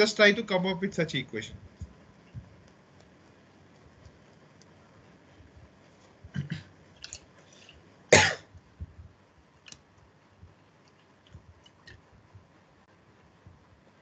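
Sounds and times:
faint clicks: 1.7s - 4.8s
person clearing throat: 6.3s - 6.7s, 8.1s - 8.5s.

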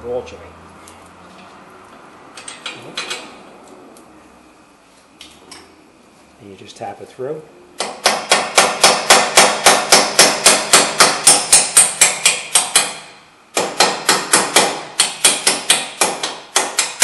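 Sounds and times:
hammer striking metal bolt: 7.8s - 17.0s.

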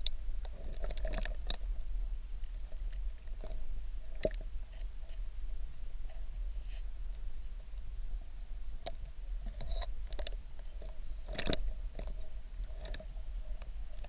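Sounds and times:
faint hum: 0.0s - 14.0s
sharp underwater clicks: 8.8s - 12.2s.

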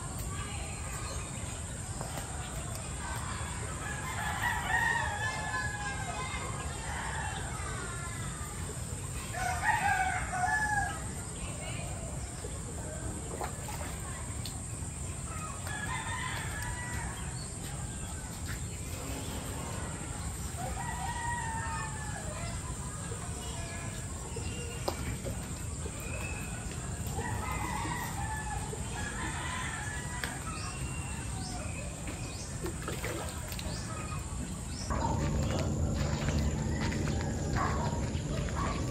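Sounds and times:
roosters crowing: 9.3s - 11.1s, 20.5s - 22.4s, 27.1s - 31.6s, 34.9s - 38.9s
steady low background: 34.9s - 38.9s.

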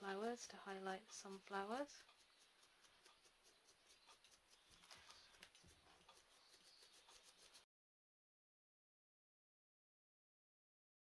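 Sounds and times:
paintbrush scratching on canvas: 0.0s - 7.7s.

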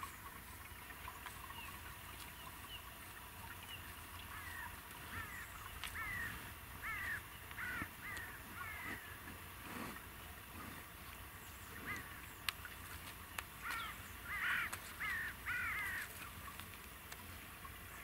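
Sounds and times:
bird calling short calls: 4.3s - 9.2s, 13.6s - 16.1s.

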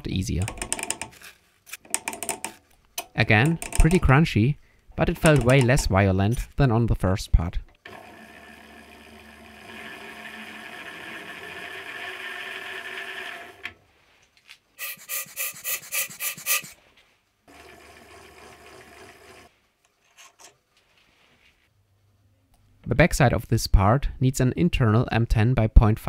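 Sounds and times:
sharp scrapes: 14.8s - 16.8s.

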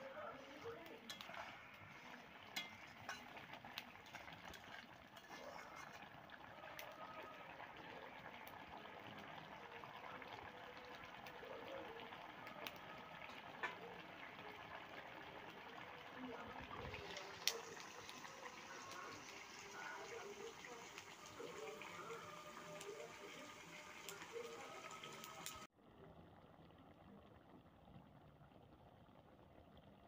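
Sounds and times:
curry bubbling with small pops: 0.0s - 30.0s.

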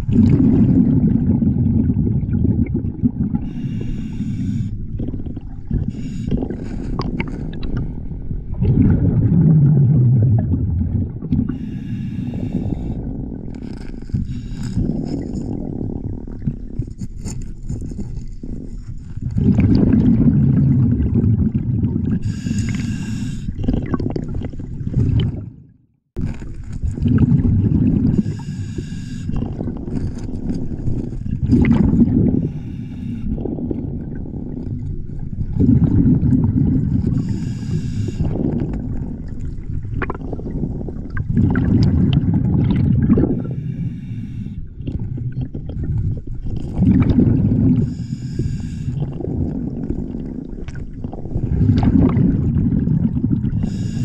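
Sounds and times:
exhaled bubbles rumbling underwater: 0.0s - 54.0s
regulator inhalation hiss: 3.5s - 4.8s, 5.9s - 6.9s, 11.5s - 13.0s, 22.2s - 23.5s, 28.2s - 29.4s, 37.2s - 38.3s, 43.5s - 44.6s, 47.9s - 49.0s, 53.6s - 54.0s.

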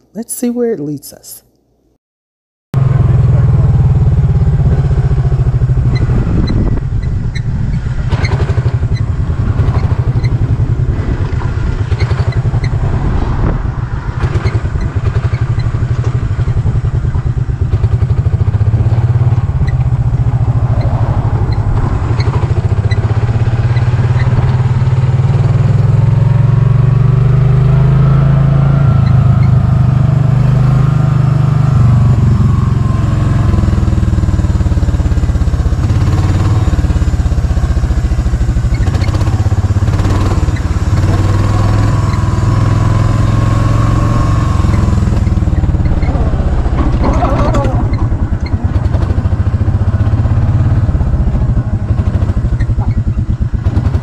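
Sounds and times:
golf cart rumbling: 2.8s - 54.0s
wind buffeting microphone: 3.4s - 26.2s, 40.8s - 54.0s.

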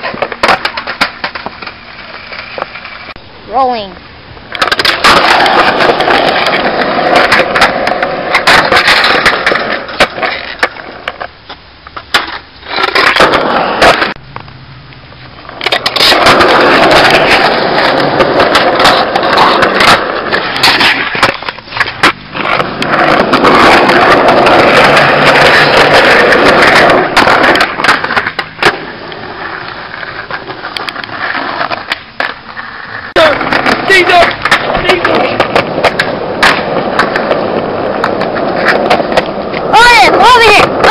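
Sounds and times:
wheels clacking over slab joints: 0.0s - 3.2s, 4.5s - 40.9s
skateboard wheels rolling on concrete: 0.0s - 40.9s
skateboard knocks: 33.2s - 40.9s.

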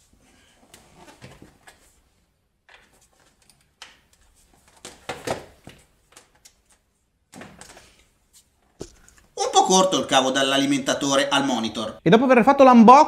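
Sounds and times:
cables handled on hard floor: 0.6s - 9.4s.

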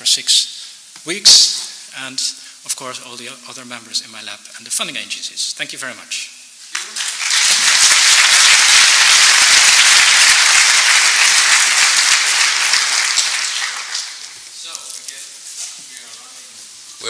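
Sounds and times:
audience applauding: 6.7s - 14.5s.

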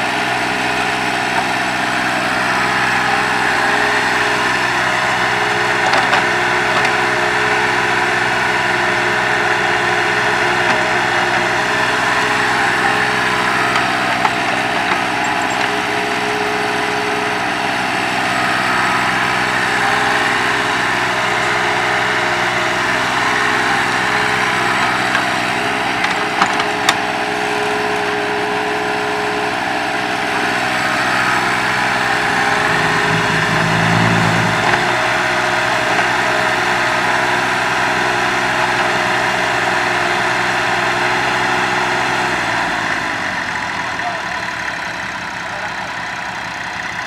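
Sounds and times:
excavator diesel engine running: 0.0s - 47.0s.

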